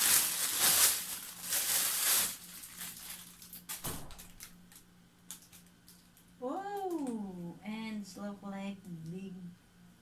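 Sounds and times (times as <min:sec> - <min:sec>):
plastic bag crinkling: 0:00.0 - 0:07.2.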